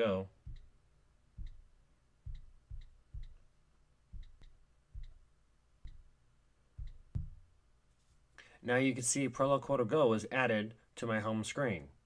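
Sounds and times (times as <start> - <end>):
on-screen keyboard taps: 4.1 - 5.2.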